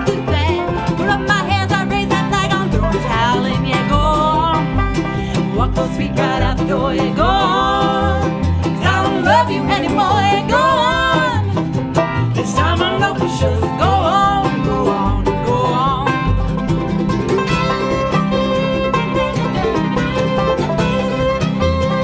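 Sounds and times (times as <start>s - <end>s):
woman singing: 0.0s - 11.7s, 12.3s - 16.4s
bluegrass band playing: 0.0s - 22.0s.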